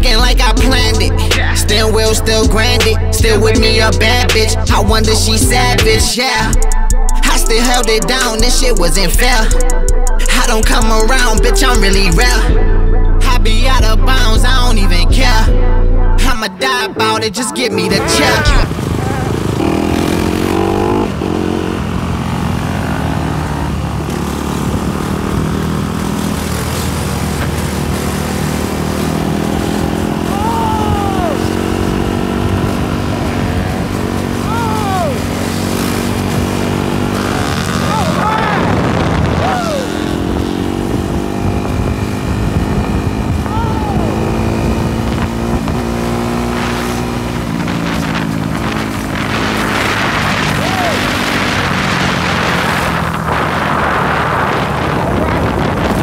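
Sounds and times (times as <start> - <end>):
quad bike engine revving: 17.9 - 56.0
wind noise: 30.7 - 56.0.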